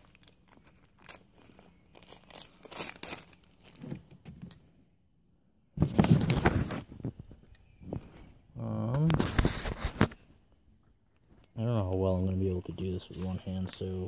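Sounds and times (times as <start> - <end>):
rubbing against microphone: 9.0 - 10.3.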